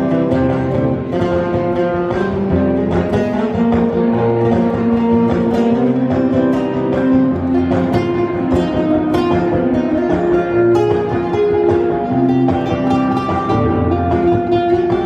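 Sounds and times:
guitar music: 0.0 - 15.0
low bass notes: 0.0 - 15.0.

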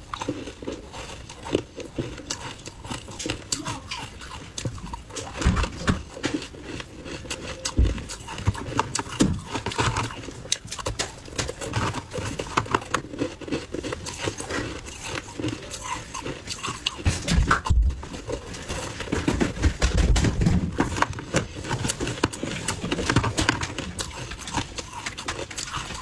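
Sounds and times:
ice being chewed crunching: 0.0 - 26.0.

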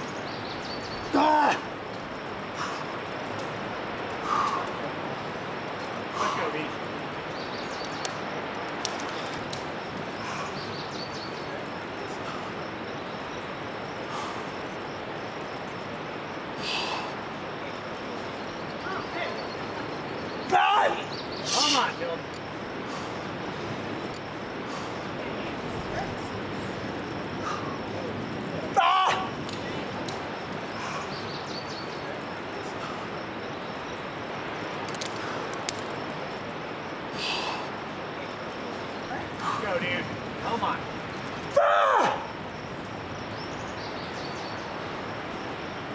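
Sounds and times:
outdoor background noise: 0.0 - 45.9
short breathy hiss: 4.2 - 4.8, 14.1 - 14.6, 16.6 - 17.2, 22.8 - 23.3, 37.1 - 37.9
sharp clicks: 34.8 - 35.9.

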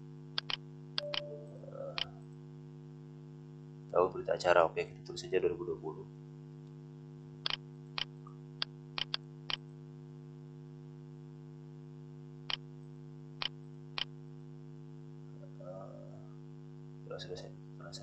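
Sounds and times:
mains hum: 0.0 - 18.0
mouse and keyboard clicks: 0.4 - 1.3, 9.0 - 9.2.

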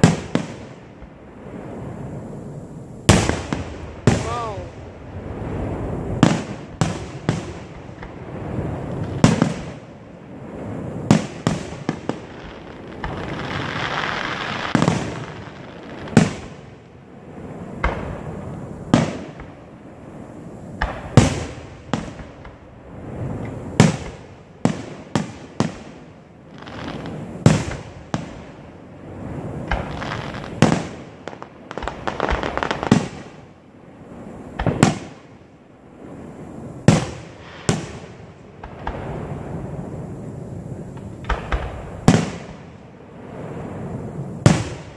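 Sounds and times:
firework shells bursting: 40.8 - 42.7.

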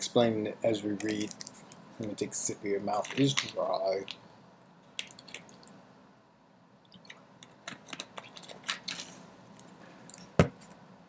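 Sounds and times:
plastic bottle crinkling and clicking: 7.0 - 9.2.

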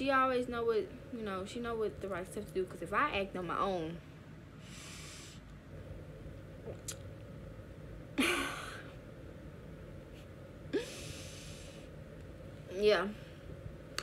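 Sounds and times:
woman sighing: 10.7 - 11.5.

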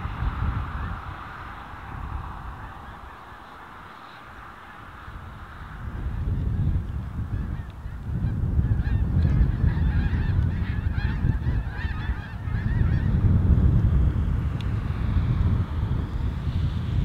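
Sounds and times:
geese honking: 0.0 - 13.4
wind buffeting microphone: 0.0 - 17.0.

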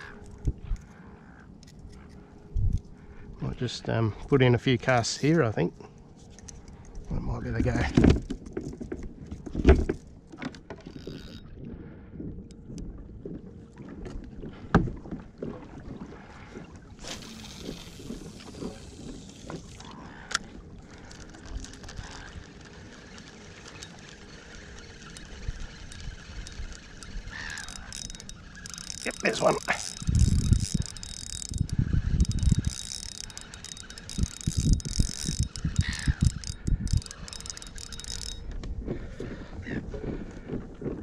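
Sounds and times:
fishing reel winding: 10.9 - 11.5, 17.0 - 38.5
fishing line hissing off reel: 17.0 - 20.3, 21.0 - 38.4.

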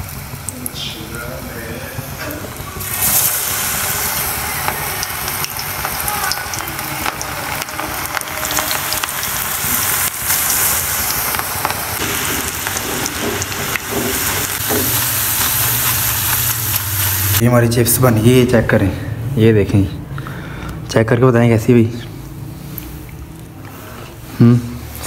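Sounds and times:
chips deep-frying with crackles: 0.0 - 17.4.

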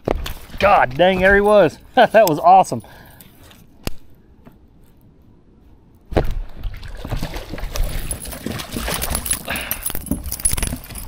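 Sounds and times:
fish thrashing and splashing: 6.6 - 11.0.

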